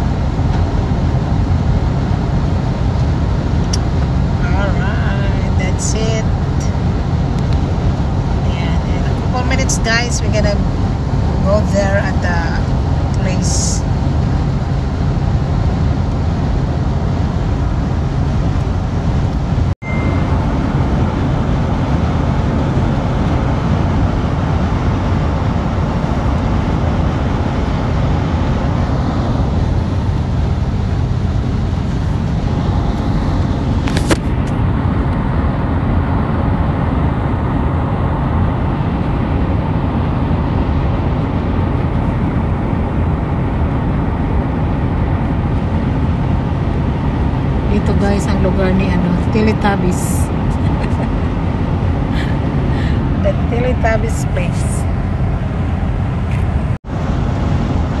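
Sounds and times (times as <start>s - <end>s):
road and engine noise in car: 0.0s - 58.0s.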